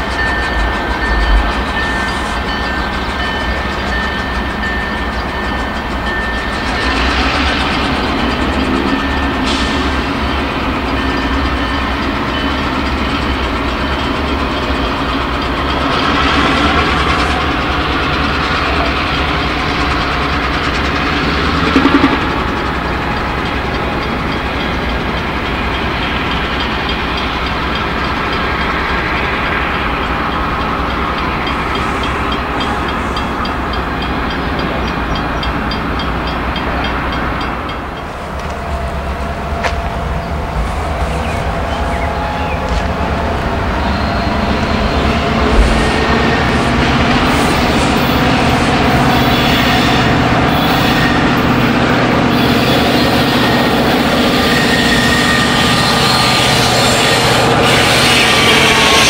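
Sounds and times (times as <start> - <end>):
diesel locomotive engine throbbing: 0.0 - 59.0.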